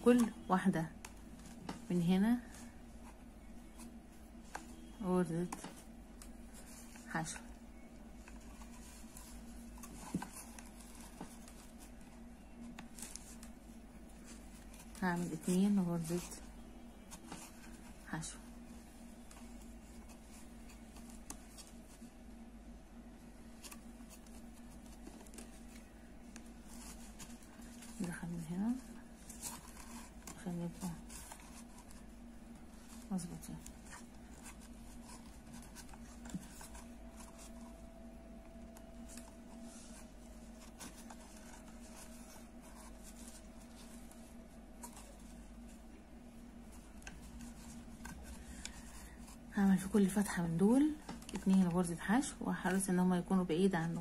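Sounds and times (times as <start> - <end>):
crochet hook and yarn rustling: 0.0 - 22.2, 23.4 - 54.0
low hum: 0.0 - 54.0.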